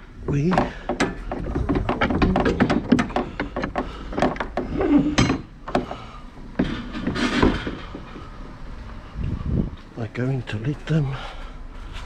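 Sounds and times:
knocks and clatter of rummaging: 0.0 - 8.6.

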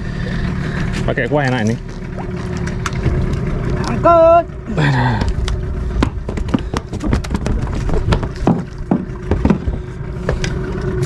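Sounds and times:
wind and water rumble: 0.0 - 11.0
knocks and taps on a boat: 6.0 - 10.4.

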